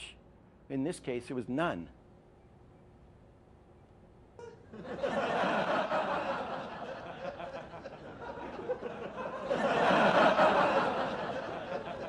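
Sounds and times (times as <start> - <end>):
audience laughing: 4.7 - 12.0.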